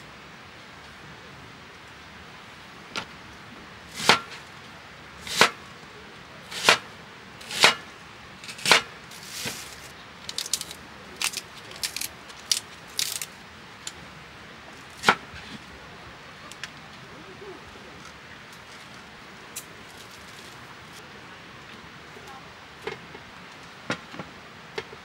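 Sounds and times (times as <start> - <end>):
sharp chopping knocks: 7.5 - 7.8, 8.6 - 8.9.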